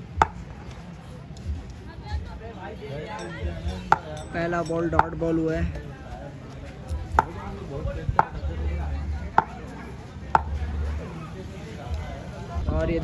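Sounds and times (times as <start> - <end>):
sharp taps: 8.1 - 8.4, 10.3 - 10.6.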